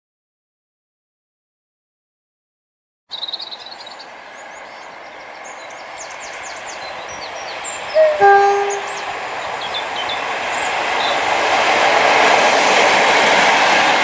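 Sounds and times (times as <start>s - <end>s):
birds chirping: 3.1s - 11.2s
train approaching: 3.3s - 14.0s
train horn: 8.0s - 9.4s.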